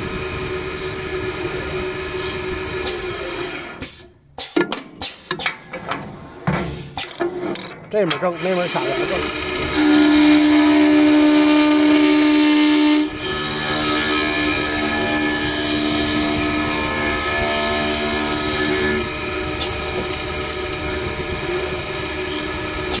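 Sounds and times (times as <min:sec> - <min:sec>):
cutter shaving wood: 0:08.3 - 0:23.0
lathe motor whine: 0:08.4 - 0:23.0.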